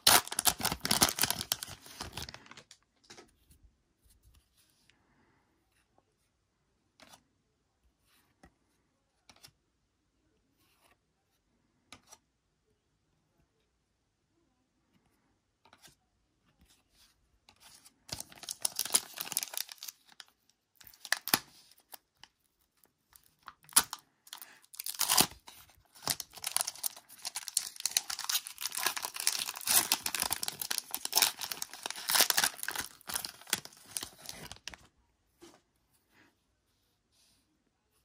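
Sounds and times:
foil pack tearing and crinkling: 0:00.0 - 0:02.7, 0:18.2 - 0:20.0, 0:23.7 - 0:25.4, 0:26.0 - 0:34.8.

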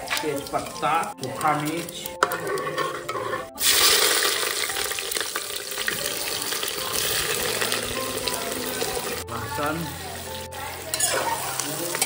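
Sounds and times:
onions sizzling in hot oil: 0:00.0 - 0:12.0
utensil scraping metal pot: 0:00.3 - 0:04.0, 0:10.9 - 0:11.6.

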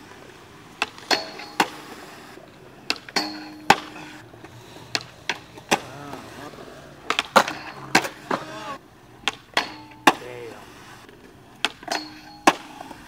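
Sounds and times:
skateboard wheels rolling: 0:00.0 - 0:13.0
skateboard clacks on concrete: 0:02.9 - 0:10.3.

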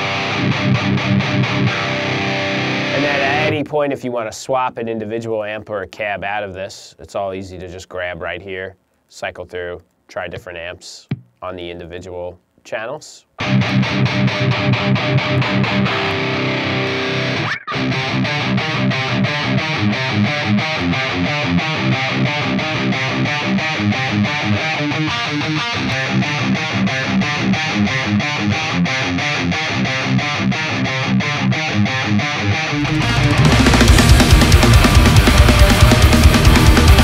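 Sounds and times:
distorted electric guitar: 0:00.0 - 0:03.7, 0:13.4 - 0:37.0.

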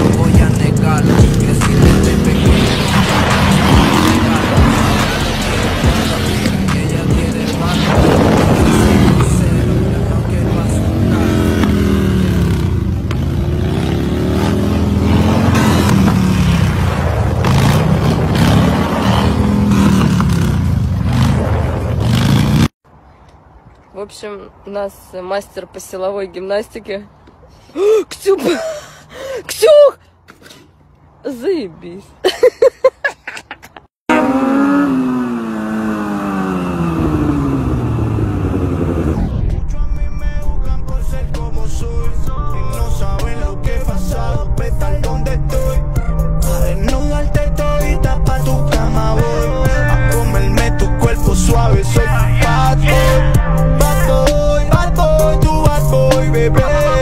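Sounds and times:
motorcycle engine revving: 0:00.0 - 0:22.8, 0:34.0 - 0:40.4, 0:41.0 - 0:57.0
road and wind noise: 0:00.0 - 0:57.0.

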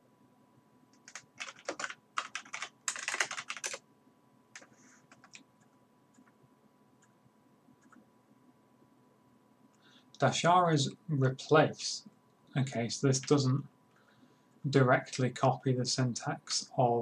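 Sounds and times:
typing on computer keyboard: 0:00.9 - 0:03.8, 0:04.6 - 0:05.4, 0:07.8 - 0:08.0.

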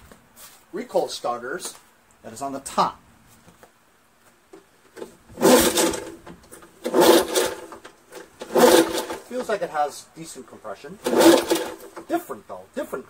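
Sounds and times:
recoil starter rope pulls: 0:05.0 - 0:09.6, 0:11.0 - 0:12.2.

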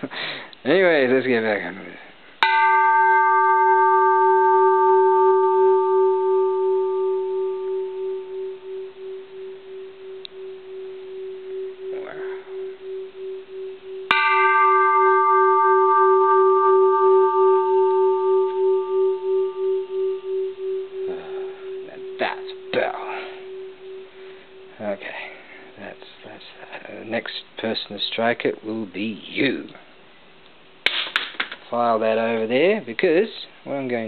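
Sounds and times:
bronze temple bell ringing: 0:02.4 - 0:29.6.

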